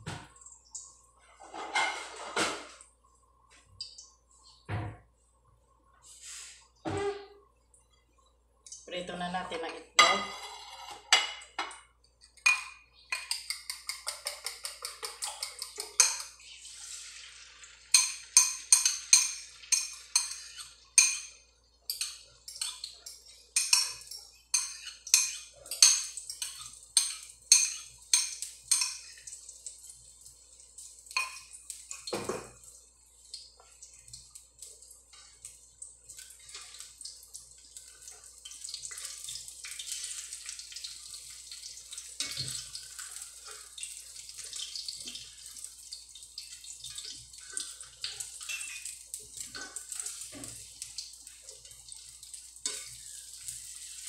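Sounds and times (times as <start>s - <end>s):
eggs sizzling in hot oil: 5.8s - 54.0s
utensil clinking against bowl: 12.4s - 16.4s
eggs beaten in a bowl: 12.5s - 16.4s, 17.9s - 29.2s.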